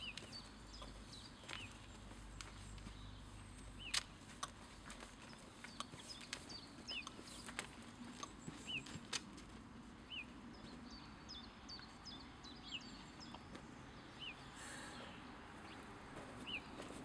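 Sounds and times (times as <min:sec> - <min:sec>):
songbird chirps: 0:00.0 - 0:17.0.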